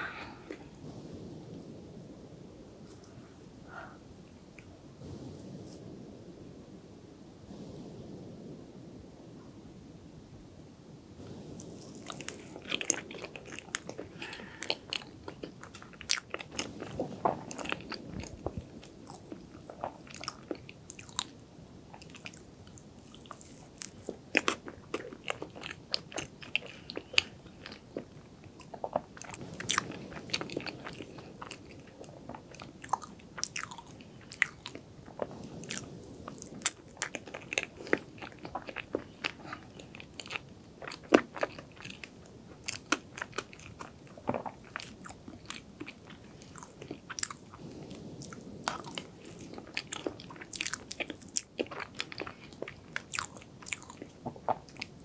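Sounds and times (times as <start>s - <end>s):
close chewing of cake: 11.6s - 55.0s.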